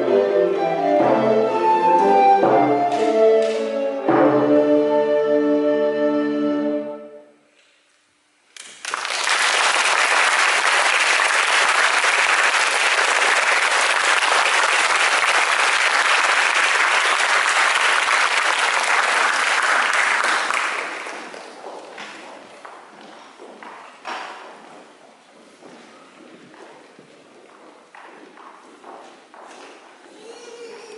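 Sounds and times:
audience applauding: 8.6 - 21.6.

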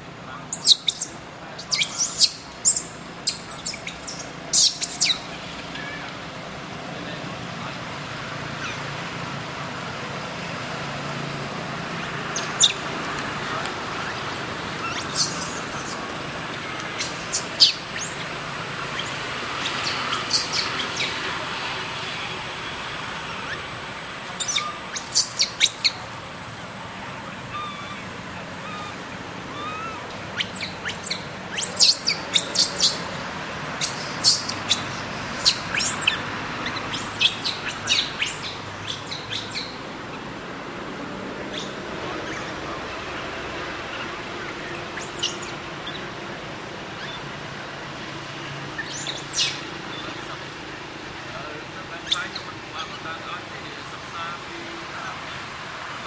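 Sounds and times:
small birds chirping: 0.3 - 6.1, 12.0 - 22.4, 23.2 - 26.1, 27.3 - 40.2, 41.4 - 46.2, 48.2 - 50.6, 51.2 - 53.4.

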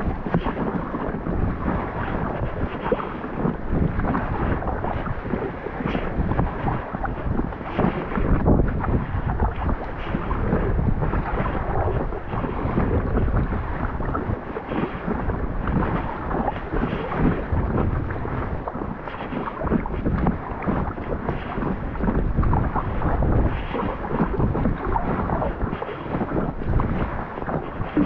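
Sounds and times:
water splashing and lapping: 0.0 - 28.0
wind buffeting microphone: 0.0 - 28.0.

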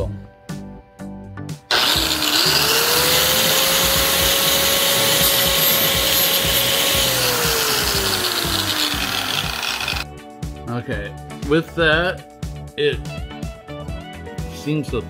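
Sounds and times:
angle grinder grinding foam: 1.7 - 10.0.

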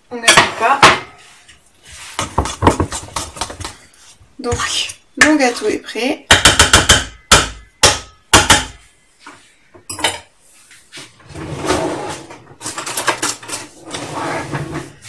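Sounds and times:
utensil knocking on metal bowl: 6.3 - 8.8.

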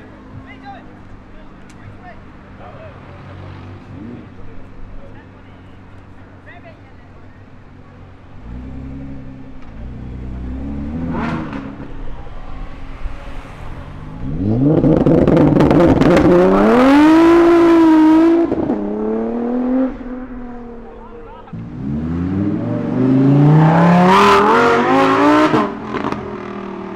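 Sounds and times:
car exhaust accelerating hard: 8.3 - 26.9.

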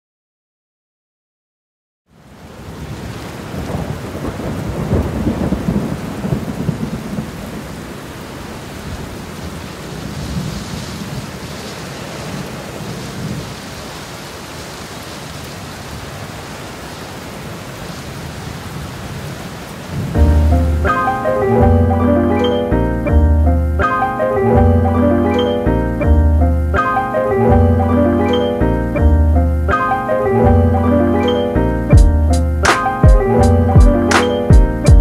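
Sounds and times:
steady rain: 2.1 - 35.0
rolling thunder: 2.9 - 7.9, 8.8 - 11.5, 19.9 - 21.0.

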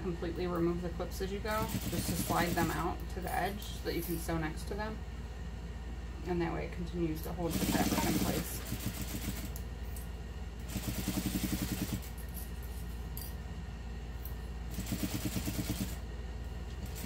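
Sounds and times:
steady low hum: 0.0 - 17.0
sewing machine stitching: 10.7 - 12.1, 14.7 - 16.0.

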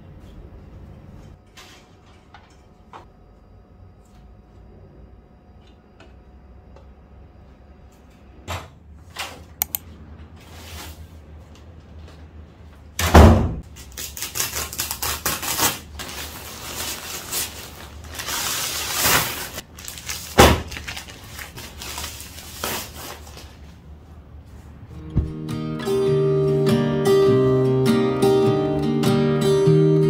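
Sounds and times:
small clicks: 9.6 - 9.8.

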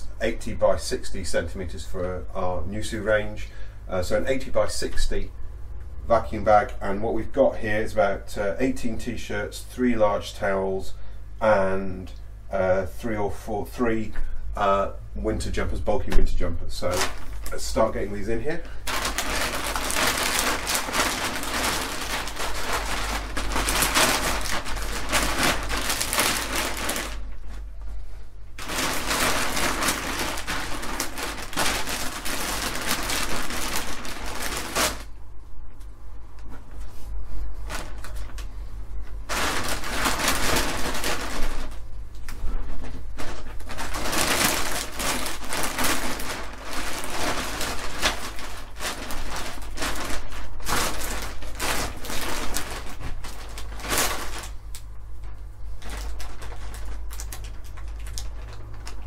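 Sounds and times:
plastic bag crinkling: 16.8 - 35.1, 37.6 - 59.0.

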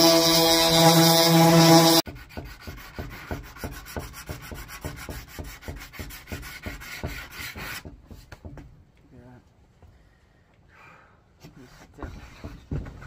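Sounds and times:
orbital sander humming: 0.0 - 2.0.

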